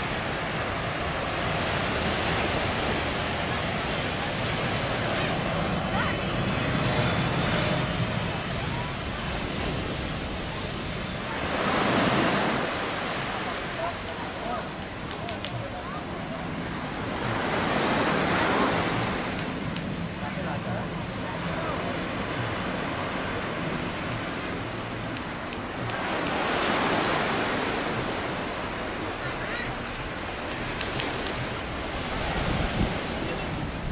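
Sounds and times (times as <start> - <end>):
jet engine roar: 0.0 - 11.4
jet engines roaring overhead: 0.0 - 33.9.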